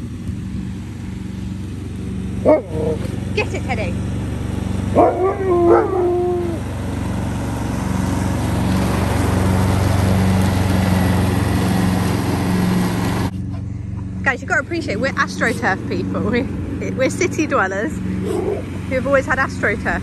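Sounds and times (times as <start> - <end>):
ride-on lawn mower engine: 0.0 - 20.0
dog howling: 4.9 - 6.6.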